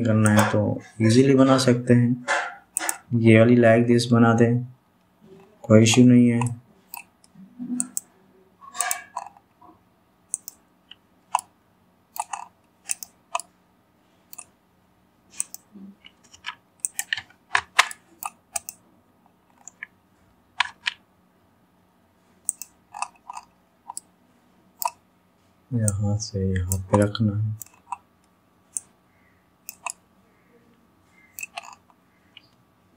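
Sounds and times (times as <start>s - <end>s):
faint steady hum: 0.0s - 32.9s
mouse and keyboard clicking: 0.2s - 0.6s, 2.3s - 3.1s, 5.9s - 8.1s, 8.7s - 9.4s, 10.3s - 10.6s, 12.2s - 13.5s, 14.3s - 14.5s, 15.3s - 18.8s, 20.6s - 21.0s, 22.4s - 24.1s, 24.8s - 25.0s, 26.6s - 28.0s, 28.7s - 28.9s, 29.6s - 30.0s, 31.1s - 32.6s.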